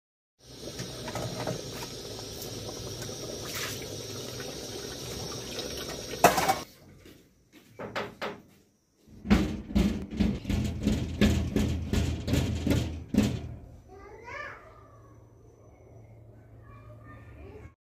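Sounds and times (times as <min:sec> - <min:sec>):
soup bubbling in a pot: 0:00.4 - 0:06.7
short knocks and clatter: 0:09.2 - 0:13.7.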